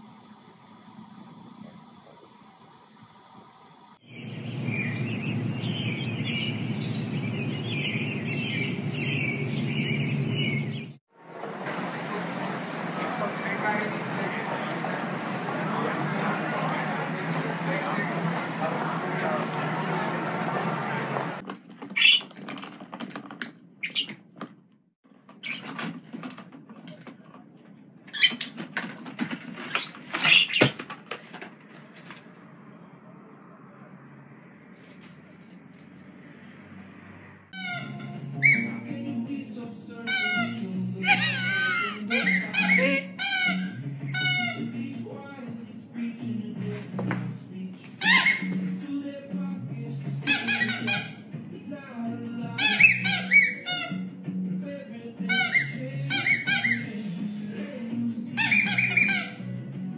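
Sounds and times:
low outdoor rumble: 0.0s - 21.5s, 31.5s - 41.5s
small birds chirping: 4.0s - 11.0s, 23.8s - 24.2s
parrot chirps: 37.6s - 38.8s, 40.1s - 44.6s, 52.6s - 54.0s, 55.3s - 57.0s, 58.4s - 59.4s.

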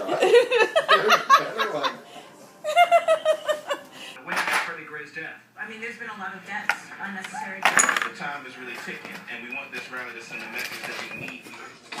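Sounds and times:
people talking: 0.0s - 2.0s, 4.2s - 11.8s
people laughing: 0.0s - 4.1s.

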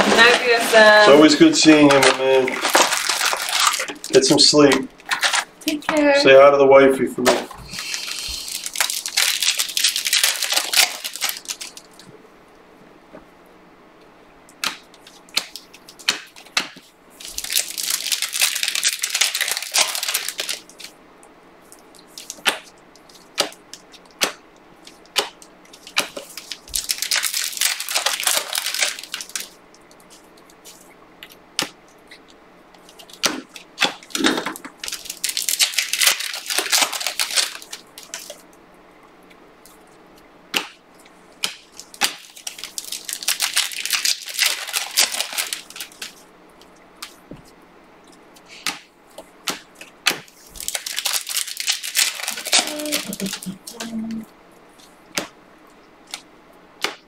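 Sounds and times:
card pack wrappers tearing: 0.0s - 5.7s, 7.3s - 12.0s, 14.6s - 21.0s, 21.8s - 38.5s, 41.4s - 46.2s, 49.4s - 54.0s
trading cards being shuffled: 48.4s - 54.0s.

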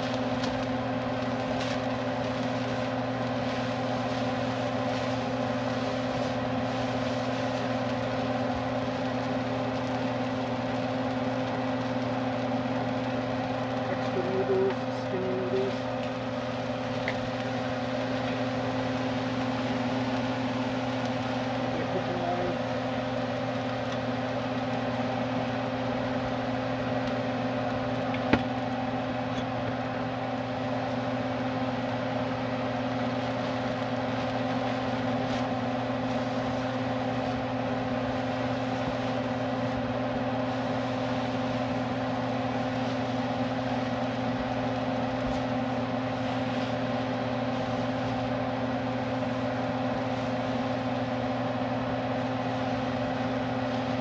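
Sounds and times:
motor hum: 0.0s - 54.0s.

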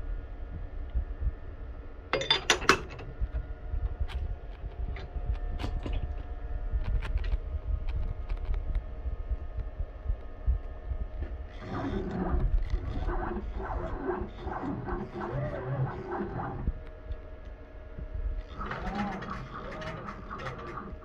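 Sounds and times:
lathe low hum: 0.0s - 21.0s
drive motors whining: 11.5s - 17.0s, 18.4s - 21.0s
sharp machine clicks: 18.4s - 21.0s.

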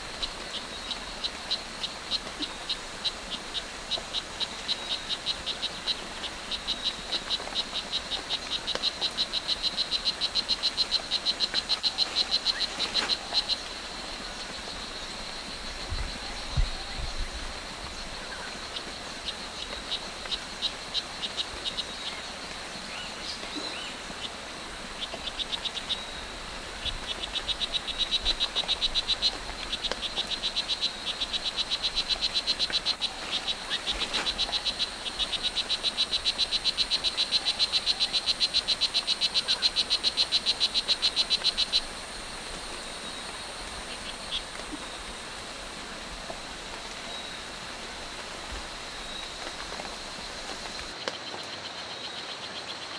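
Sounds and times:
frog calling with buzzing chirps: 0.2s - 15.0s, 25.0s - 45.5s.

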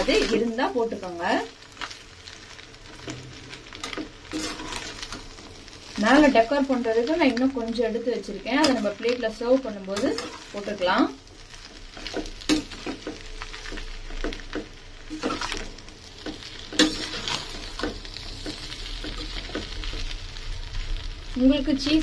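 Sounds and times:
light frying sizzle: 0.0s - 22.0s
metal spatula scraping a pan: 2.9s - 6.4s, 9.8s - 10.8s, 11.7s - 20.1s.

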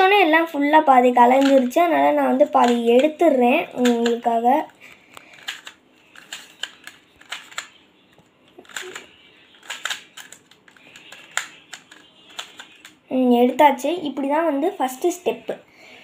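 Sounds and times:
plastic puzzle cube clicking: 1.3s - 1.8s, 2.6s - 3.2s, 3.8s - 4.2s, 5.1s - 7.8s, 8.6s - 13.0s.

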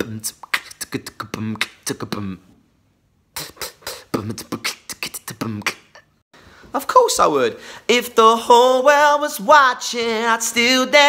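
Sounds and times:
man beatboxing: 0.0s - 2.6s, 3.4s - 6.2s.

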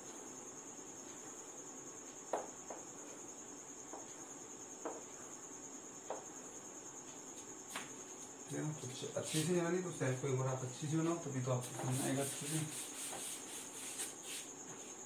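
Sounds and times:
chalk tapping on chalkboard: 9.2s - 9.6s, 11.6s - 15.0s.

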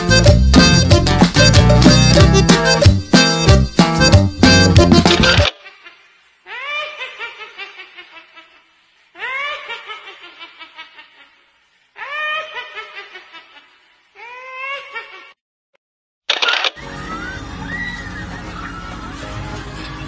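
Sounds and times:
woman cackling laugh: 5.4s - 15.4s.

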